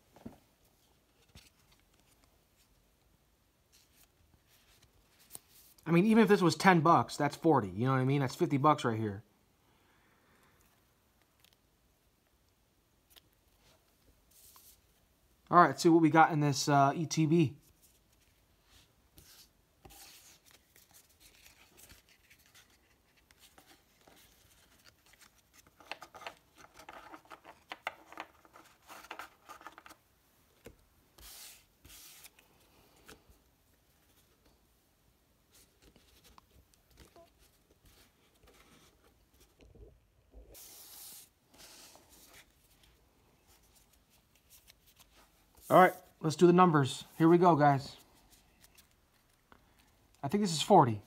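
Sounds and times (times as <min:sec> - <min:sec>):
cards rustling and slapping on table: 0:19.2 - 0:30.0, 0:30.6 - 0:32.4.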